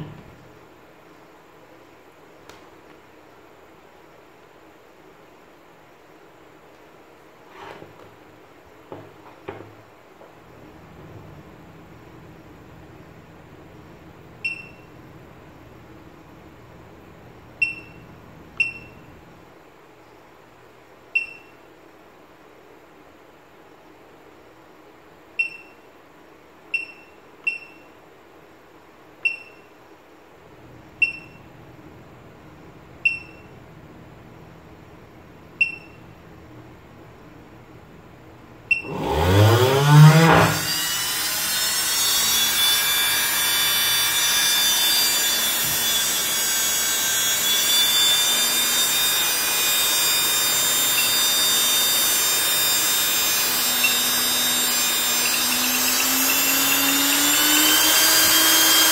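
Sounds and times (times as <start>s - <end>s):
keypad beeps: 14.5s - 14.8s, 17.6s - 18.0s, 18.6s - 19.0s, 21.2s - 21.6s, 25.4s - 25.8s, 26.8s - 27.9s, 29.2s - 29.7s, 31.0s - 31.4s, 33.1s - 33.5s, 35.6s - 36.0s
small motor whining: 38.8s - 58.9s.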